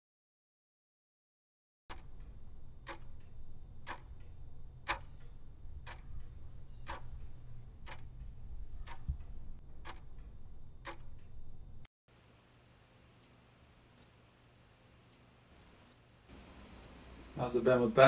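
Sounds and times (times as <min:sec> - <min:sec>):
clock ticking: 0:01.9 - 0:11.9
low steady hum: 0:01.9 - 0:18.0.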